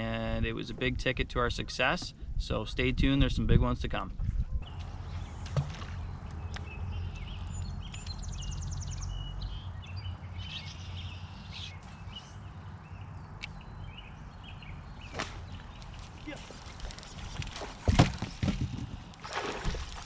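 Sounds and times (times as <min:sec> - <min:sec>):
small birds chirping: 0:04.6 - 0:17.4.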